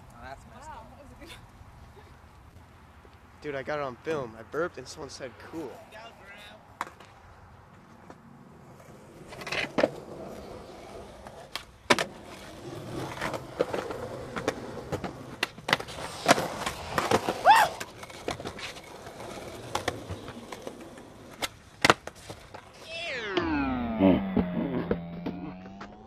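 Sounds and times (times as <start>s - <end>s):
skateboard wheels rolling on concrete: 0.0s - 26.0s
skateboard clacking on ground: 5.6s - 22.8s.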